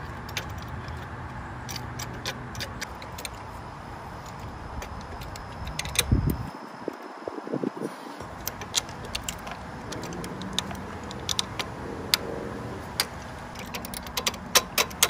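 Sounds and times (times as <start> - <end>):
low background noise: 0.0 - 15.0
small metal parts clinking: 8.2 - 12.3, 12.9 - 15.0.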